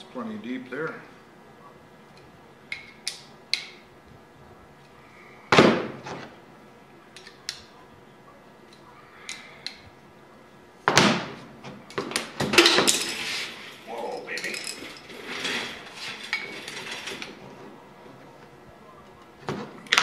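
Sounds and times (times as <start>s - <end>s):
steel parts knocking and clinking: 14.2s - 15.1s.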